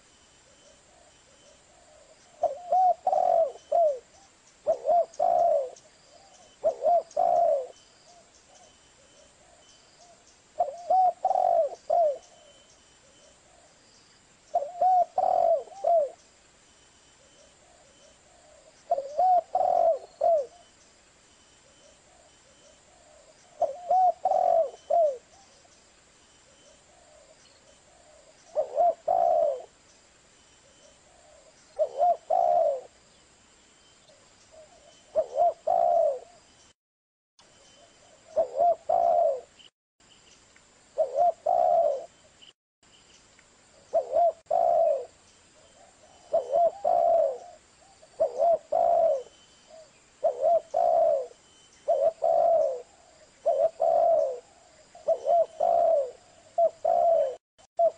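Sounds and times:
dove cooing: 1.7s - 13.7s, 14.5s - 16.2s, 17.3s - 20.7s, 21.7s - 25.6s, 26.5s - 29.8s, 31.0s - 33.0s, 34.5s - 36.4s, 38.0s - 39.6s, 41.0s - 42.2s, 43.9s - 57.9s.

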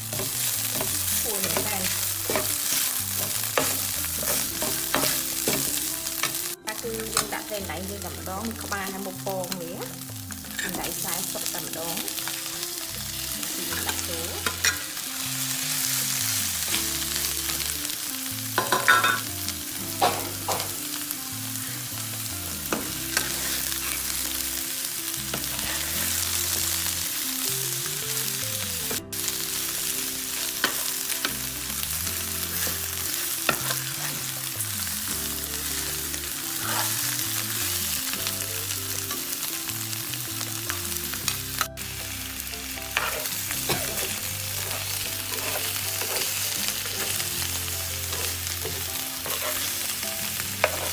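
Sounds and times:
fish sizzling in hot oil: 0.0s - 50.9s
spatula scraping the pan: 32.4s - 34.4s, 36.6s - 37.2s, 42.9s - 47.2s, 48.1s - 49.9s, 50.6s - 50.9s.

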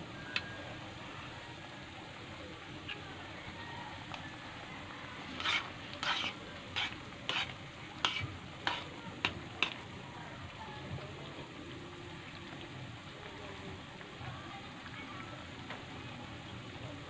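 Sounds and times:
metal spoon scraping a pan: 5.2s - 9.8s.

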